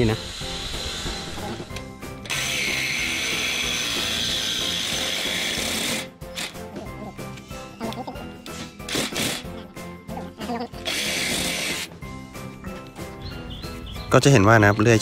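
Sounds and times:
reciprocating saw cutting steel: 0.0s - 6.8s, 8.5s - 9.6s, 10.8s - 12.0s.

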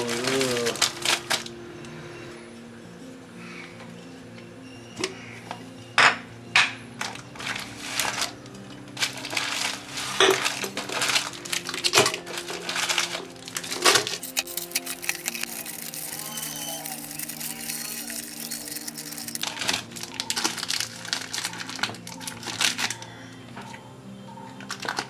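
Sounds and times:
wrappers rustling and crinkling: 0.0s - 2.0s, 7.0s - 23.8s, 24.6s - 25.0s
soft background music: 0.0s - 25.0s.

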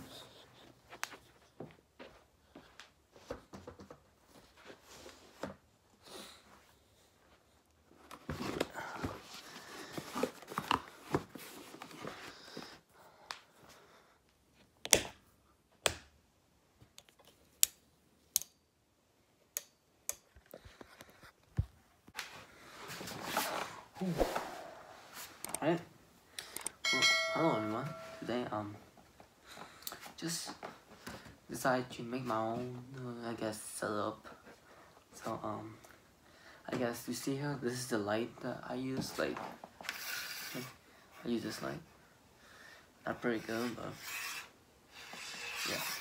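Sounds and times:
rustling handling noise: 6.4s - 12.8s.

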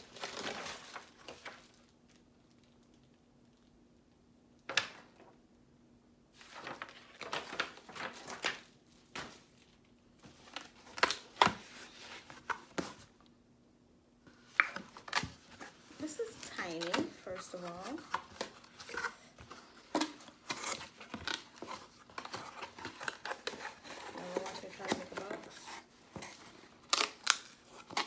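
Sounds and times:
paper rustling: 0.0s - 2.0s, 6.4s - 13.1s, 14.3s - 28.0s.

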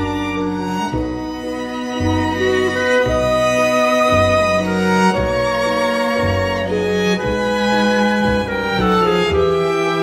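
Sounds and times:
low held string notes: 0.0s - 10.0s
violin melody: 0.0s - 10.0s.

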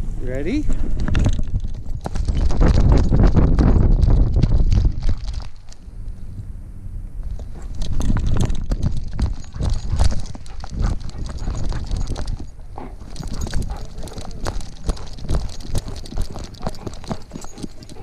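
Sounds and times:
dog paws thudding on dirt: 0.7s - 5.8s, 7.2s - 18.0s
harness clicking and rattling: 0.7s - 5.8s, 7.2s - 18.0s.

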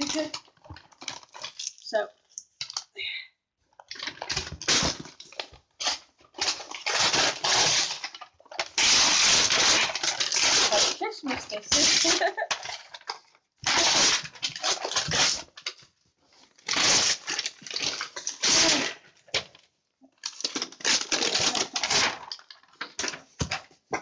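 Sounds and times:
packing tape ripping off box: 3.9s - 15.8s, 16.6s - 19.5s, 20.2s - 23.6s.

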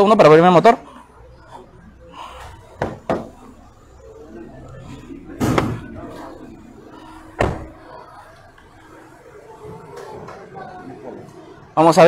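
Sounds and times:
car door heavy thud: 7.4s - 7.8s.

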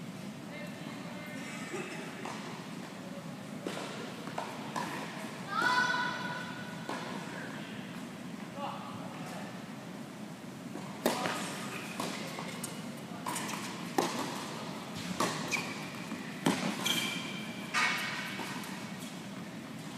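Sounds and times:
shoe squeaks on court: 11.3s - 13.9s, 15.1s - 19.3s.

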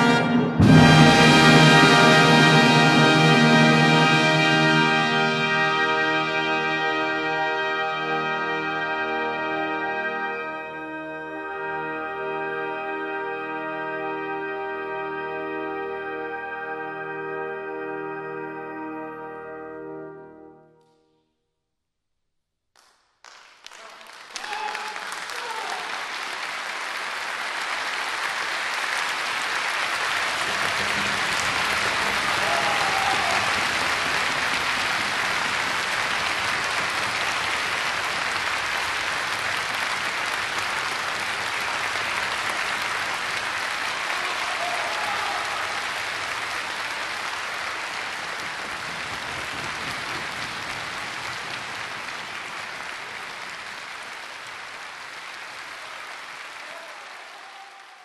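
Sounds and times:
audience applauding: 0.0s - 9.6s, 22.8s - 58.0s.

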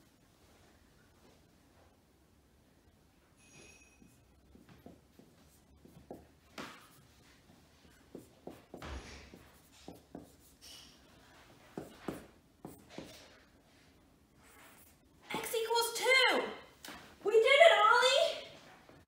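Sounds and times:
marker writing on whiteboard: 4.1s - 13.5s, 14.4s - 15.5s.

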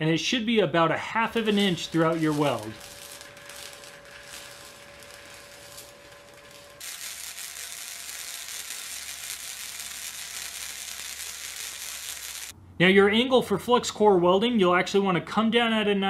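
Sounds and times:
welding arc crackling: 1.1s - 12.6s.

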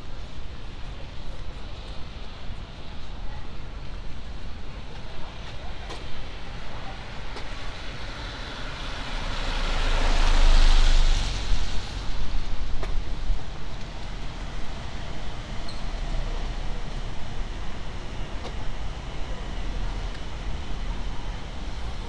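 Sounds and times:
low rumble of city traffic: 0.0s - 22.0s
car tyres hissing on wet road: 6.0s - 22.0s.

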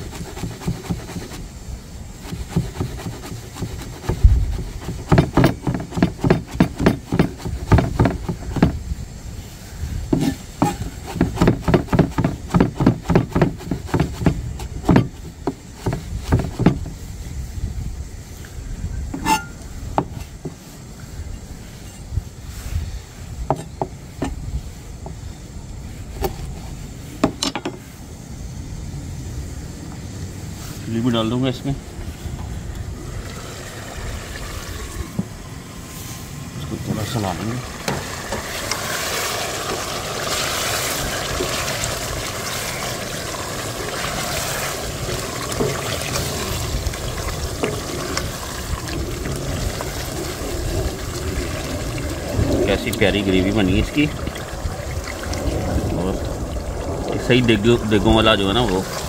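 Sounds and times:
knife chopping on cutting board: 2.3s - 8.8s, 10.1s - 15.1s.

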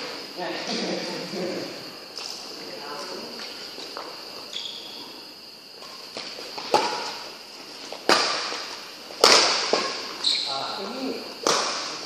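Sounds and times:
racket hitting shuttlecock: 6.2s - 7.3s, 7.9s - 10.2s, 11.4s - 12.0s.

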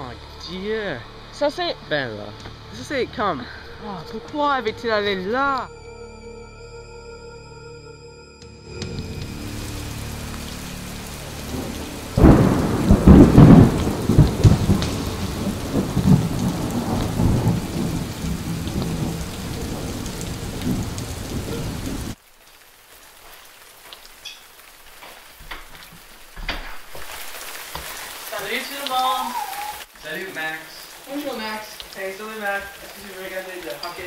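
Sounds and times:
steady rain: 0.0s - 5.7s, 8.7s - 34.0s
thunder clap rumbling: 8.8s - 22.2s.

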